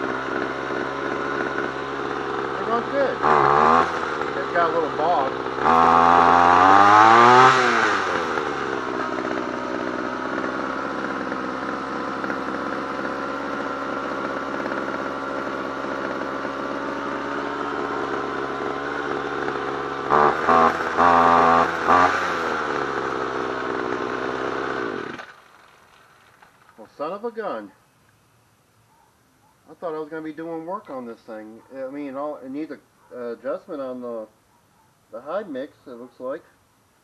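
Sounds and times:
string trimmer engine revving: 0.0s - 26.8s.

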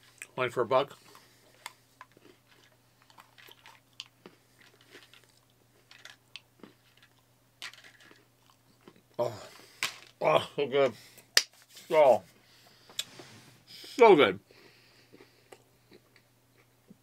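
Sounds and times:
faint chewing crunches: 0.0s - 9.8s, 14.5s - 17.0s.

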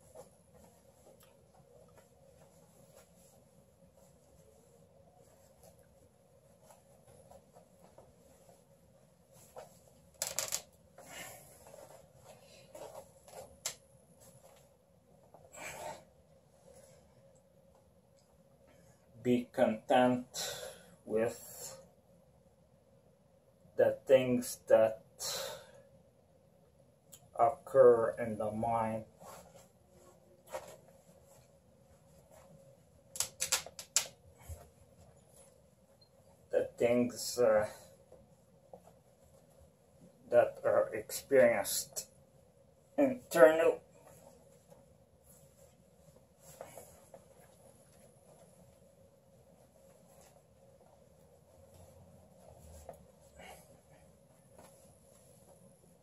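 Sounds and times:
fabric rubbing and rustling: 0.0s - 17.4s, 29.0s - 36.6s, 37.7s - 40.3s, 42.1s - 56.0s.

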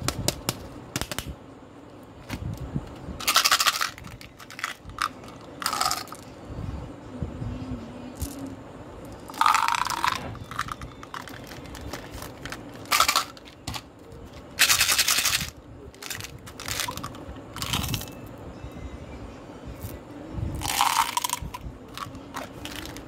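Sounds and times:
candy rattling in plastic bottles: 3.2s - 6.2s, 9.3s - 13.9s, 14.6s - 18.2s, 20.6s - 23.0s.

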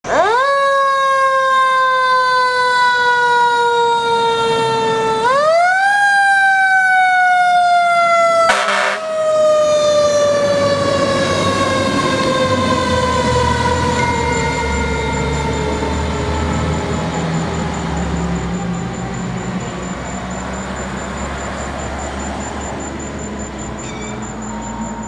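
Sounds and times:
fire engine siren winding: 0.0s - 25.0s
short horn blast: 8.5s - 9.1s.

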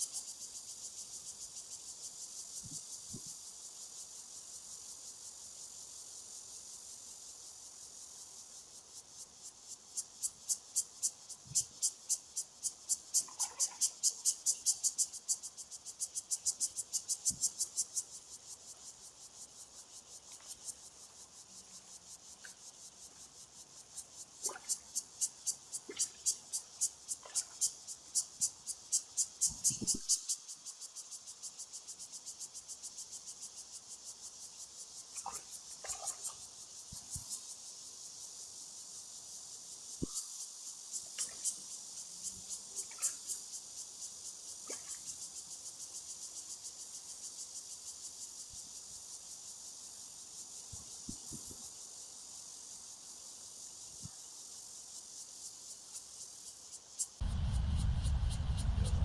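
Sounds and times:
insects buzzing drone: 0.0s - 59.0s.

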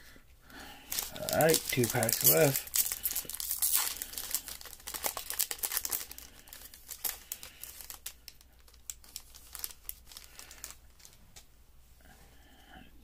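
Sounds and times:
foil wrapper crinkling and tearing: 0.8s - 11.2s.

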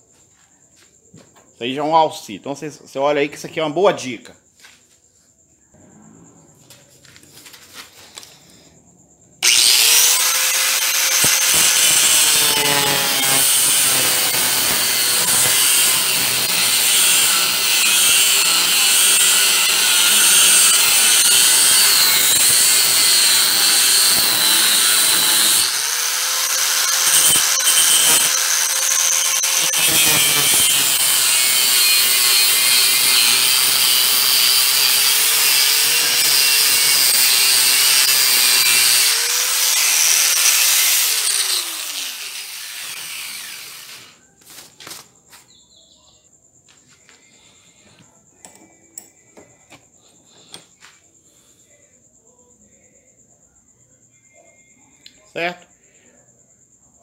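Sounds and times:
angle grinder cutting steel: 9.4s - 44.2s.

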